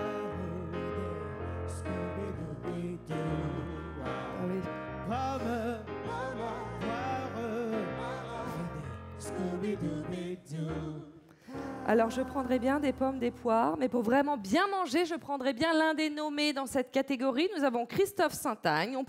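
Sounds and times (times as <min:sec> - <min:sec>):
person singing with vibrato: 0:00.0 - 0:13.6.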